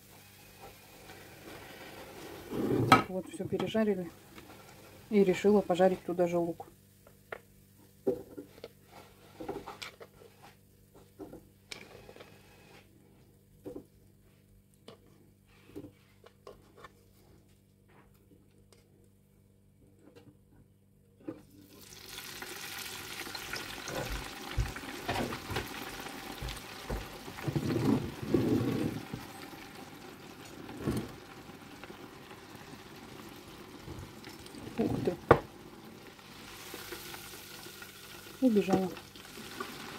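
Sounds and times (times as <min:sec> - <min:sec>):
oil sizzling in deep fryer: 0:00.0 - 0:02.6, 0:03.8 - 0:05.9, 0:21.6 - 0:39.9.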